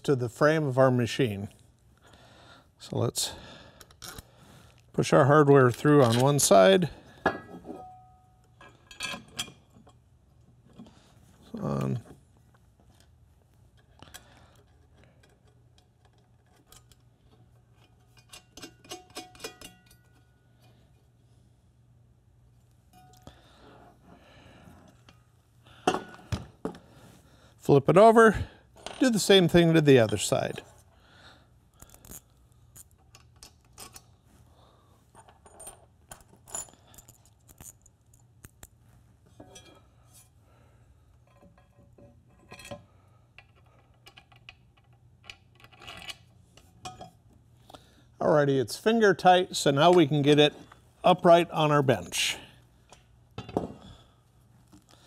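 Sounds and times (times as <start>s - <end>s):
steel bolts and washers clinking: 5.6s - 10.0s, 13.7s - 20.8s, 22.9s - 23.3s, 32.8s - 34.2s, 39.4s - 40.3s, 41.2s - 47.4s
metal hardware clicking and clinking: 13.7s - 20.4s, 31.8s - 34.2s, 35.2s - 38.8s, 43.4s - 47.3s.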